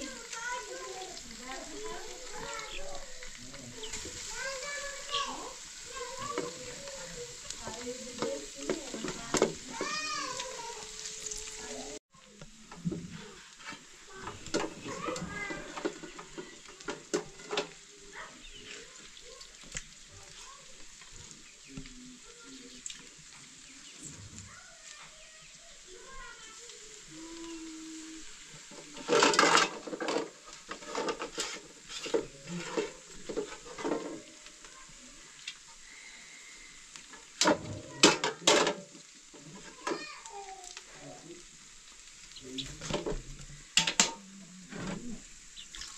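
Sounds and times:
wood fire crackling: 0.0s - 45.9s
knocks and scrapes in metal basin: 7.4s - 10.3s, 12.7s - 18.9s, 28.6s - 34.4s, 37.2s - 40.0s
water splashing: 37.4s - 45.9s.

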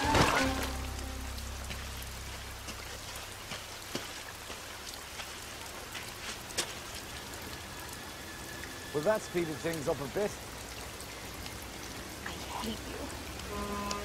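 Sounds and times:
louder raindrops striking: 0.0s - 14.0s
steady rain: 0.0s - 14.0s.

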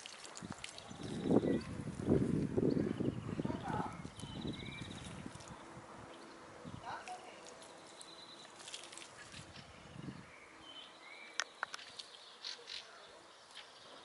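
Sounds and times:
hens scratching in pebbly soil: 6.9s - 9.7s.

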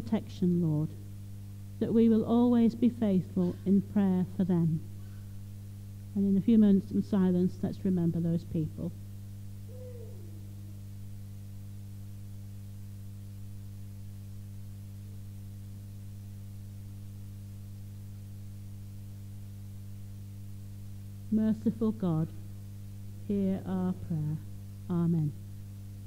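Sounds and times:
electrical hum: 0.0s - 26.0s
faint falling tone: 9.7s - 10.5s.

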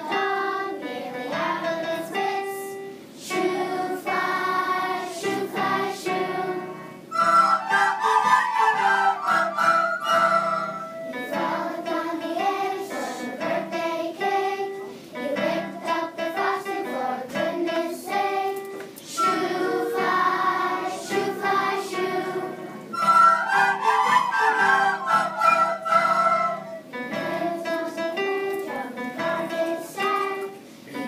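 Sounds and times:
children singing in unison: 0.0s - 31.0s
electric keyboard: 0.0s - 31.0s
recorders playing: 7.1s - 11.4s, 19.2s - 20.6s, 22.4s - 27.4s.

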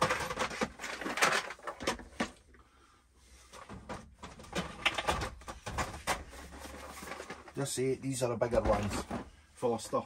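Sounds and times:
items clattering in metal locker: 0.0s - 2.4s, 8.4s - 9.4s
plastic box set down: 8.4s - 9.4s.

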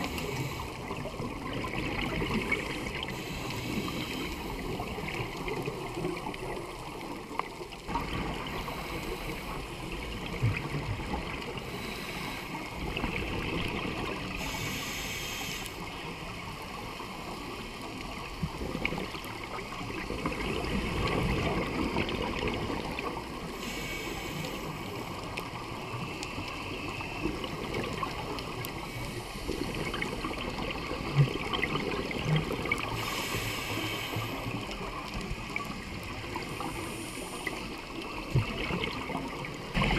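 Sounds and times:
underwater bubbling and gurgling: 0.0s - 39.9s
hissing bursts of bubbles: 11.5s - 15.8s, 28.9s - 34.9s.

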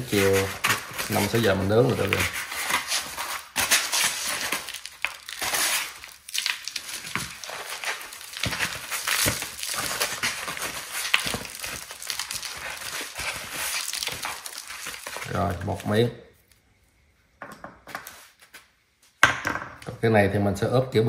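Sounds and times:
crinkling and crackling handling: 0.0s - 16.6s.

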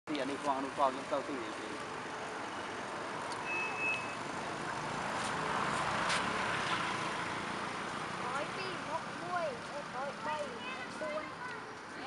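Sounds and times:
motor vehicle passing: 0.4s - 12.0s
high beep: 3.4s - 4.2s.

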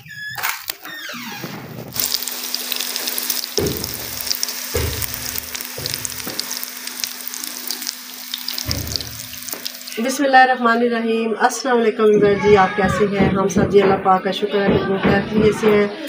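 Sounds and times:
oil sizzling and crackling: 1.8s - 10.2s.

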